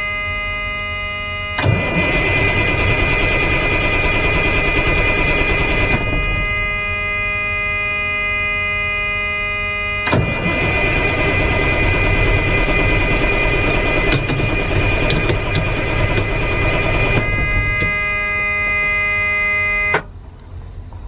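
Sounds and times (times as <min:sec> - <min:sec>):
steady high-pitched tone: 0:00.0 - 0:20.1
diesel engine cranking: 0:10.0 - 0:20.1.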